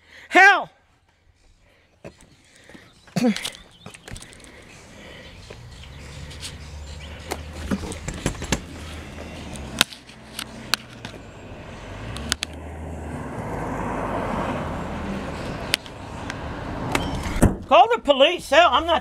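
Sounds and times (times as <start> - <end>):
car driving past: 4.6 - 17.5.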